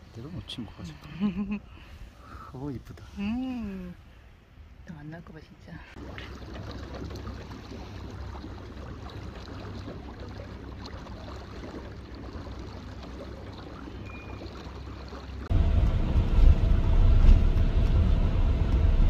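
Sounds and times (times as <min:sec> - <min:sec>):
water lapping around boat: 0:00.0 - 0:19.0
loud low rumble: 0:15.5 - 0:19.0.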